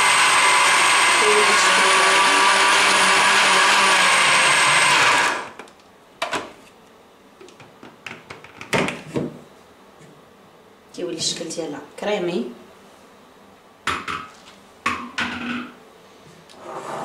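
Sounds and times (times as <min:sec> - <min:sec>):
blender running: 0:00.0 - 0:05.6.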